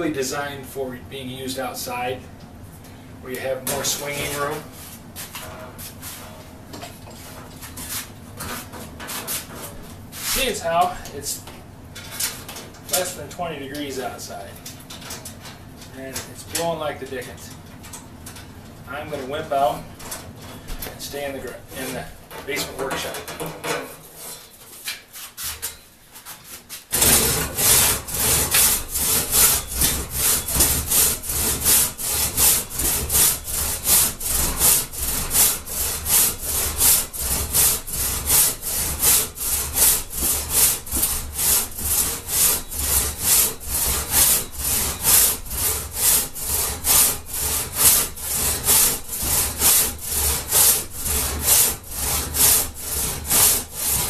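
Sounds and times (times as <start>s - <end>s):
crosscut saw rasping through log: 26.9s - 54.0s.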